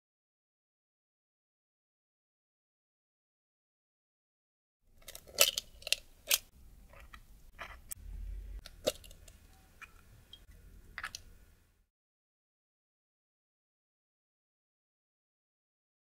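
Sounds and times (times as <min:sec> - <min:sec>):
egg shell cracking: 0:05.0 - 0:08.0, 0:08.6 - 0:11.3.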